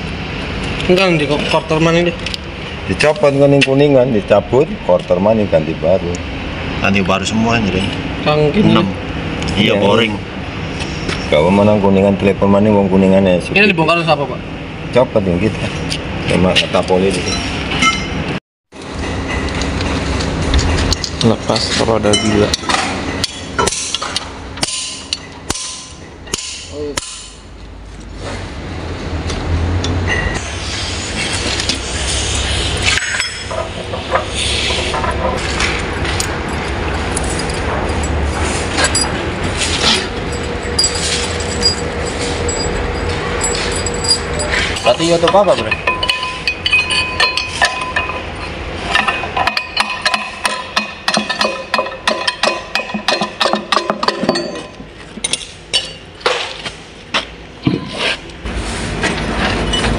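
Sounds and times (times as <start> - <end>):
spanners clinking against metal: 17.2 - 18.2, 20.6 - 27.4, 32.9 - 34.3, 34.9 - 56.5
metal tools knocking on flywheel: 18.9 - 27.4, 39.8 - 56.1.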